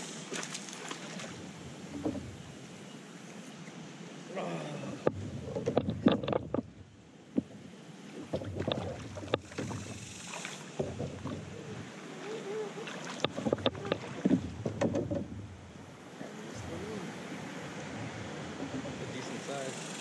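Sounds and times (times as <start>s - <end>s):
water splashing: 0.0s - 2.4s, 4.3s - 20.0s
paddle moving through water: 0.0s - 20.0s
sharp knocks: 13.2s - 15.3s.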